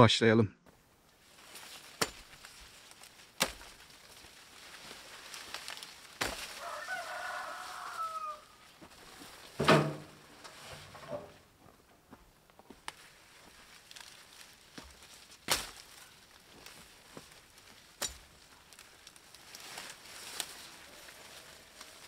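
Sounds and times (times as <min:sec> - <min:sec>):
stalks rustling: 0:00.7 - 0:22.0
blade chopping corn stalks: 0:01.5 - 0:06.8, 0:14.7 - 0:20.5
rooster crowing: 0:06.4 - 0:08.7.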